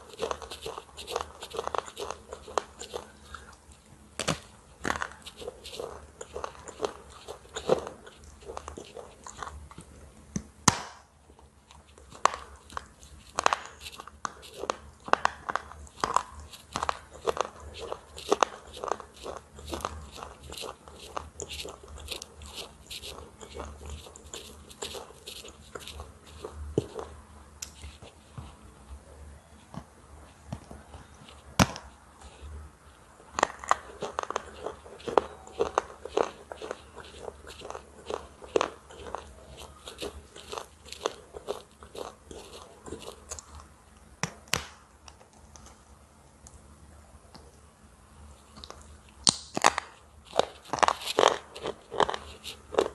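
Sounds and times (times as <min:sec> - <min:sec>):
person crunching brittle food: 0:00.0 - 0:09.9, 0:11.4 - 0:28.3, 0:31.2 - 0:44.0, 0:48.4 - 0:52.9.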